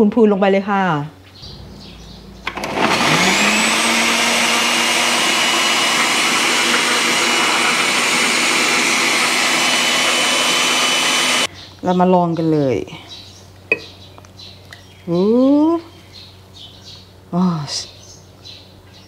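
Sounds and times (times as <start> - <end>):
blender motor whining: 2.4 - 11.5.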